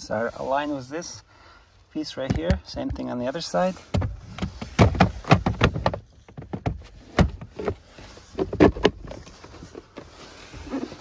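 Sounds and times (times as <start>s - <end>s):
plastic knocks and clicks: 3.9s - 7.8s.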